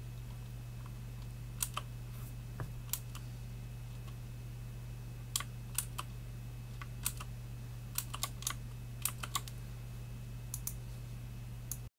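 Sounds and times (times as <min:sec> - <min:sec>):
mechanical keyboard clicking: 0:07.0 - 0:07.3, 0:08.0 - 0:09.5.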